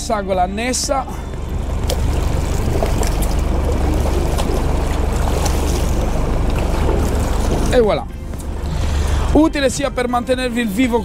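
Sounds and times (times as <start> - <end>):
steady low rumble: 0.0 - 11.0
seawater splashing and pouring: 1.1 - 9.4.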